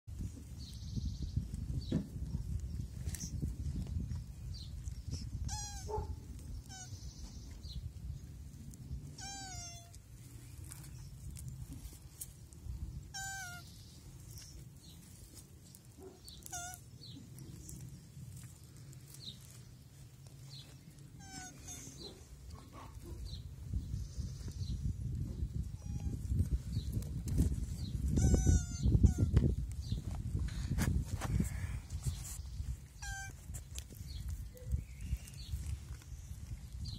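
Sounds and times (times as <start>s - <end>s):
tortoise squeaking: 5.1s - 7.6s, 9.1s - 12.2s, 12.9s - 15.3s, 16.0s - 18.5s, 20.5s - 23.4s, 25.6s - 26.6s, 27.7s - 30.0s, 31.5s - 35.8s.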